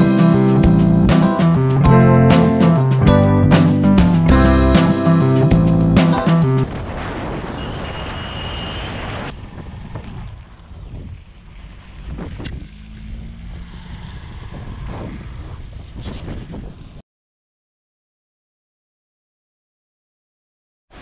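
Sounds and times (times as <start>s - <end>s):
road noise: 0.0s - 17.0s
wind rushing over microphone: 6.6s - 17.0s.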